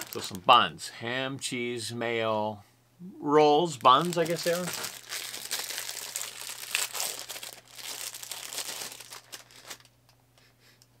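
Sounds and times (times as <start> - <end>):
plastic food wrapper crinkling: 0.0 - 0.4, 3.8 - 10.0.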